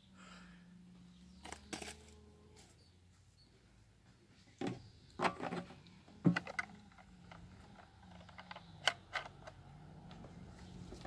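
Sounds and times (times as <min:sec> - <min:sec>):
plastic cap screwed shut clicking: 0:06.3 - 0:09.6.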